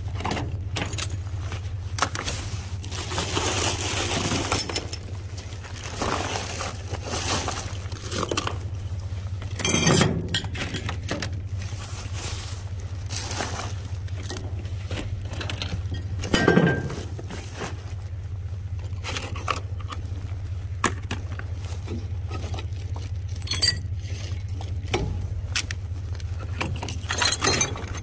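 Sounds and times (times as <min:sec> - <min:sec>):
steady low hum: 0:00.0 - 0:28.0
plastic packaging rustling: 0:01.2 - 0:09.6, 0:10.9 - 0:28.0
clinks and knocks: 0:09.6 - 0:11.3, 0:15.2 - 0:17.1, 0:23.4 - 0:25.2, 0:26.6 - 0:28.0.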